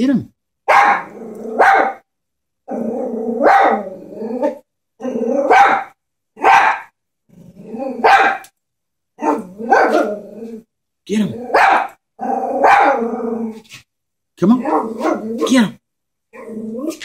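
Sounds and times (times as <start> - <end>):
small dog barking: 0.7 - 2.0, 3.4 - 3.8, 5.4 - 7.0, 8.0 - 8.5, 9.2 - 10.1, 11.5 - 12.0, 12.6 - 13.0, 14.6 - 15.5
small dog growling: 1.0 - 1.7, 2.6 - 5.6, 7.3 - 8.2, 9.3 - 10.7, 11.3 - 13.8, 16.3 - 17.0.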